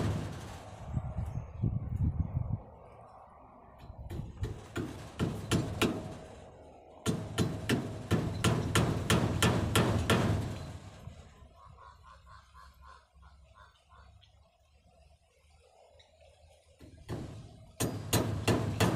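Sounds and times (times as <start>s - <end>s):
hammer striking wood: 4.1s - 6.2s, 7.0s - 10.6s, 16.8s - 18.9s.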